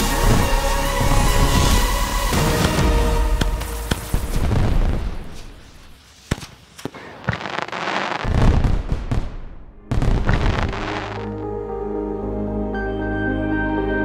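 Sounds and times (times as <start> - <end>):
fireworks bangs: 2.5 - 11.3.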